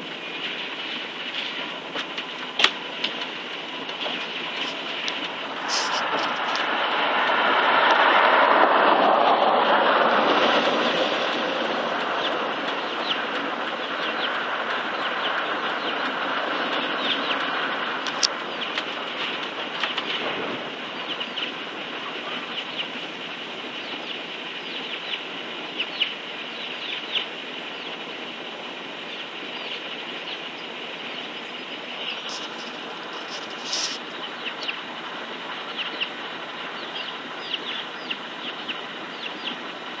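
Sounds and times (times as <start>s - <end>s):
steady background hiss: 11.1s - 40.0s
chicks peeping: 12.0s - 28.2s, 29.0s - 39.7s.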